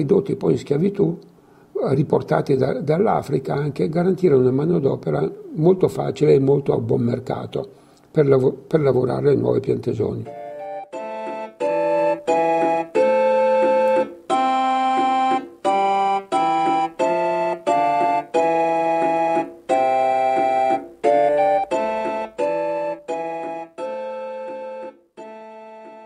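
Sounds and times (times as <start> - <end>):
keyboard chords: 10.2 - 26.0.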